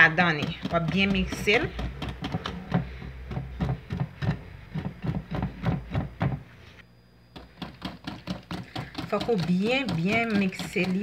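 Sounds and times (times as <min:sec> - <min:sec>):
whisk clicking against glass bowl: 0:07.5 - 0:11.0.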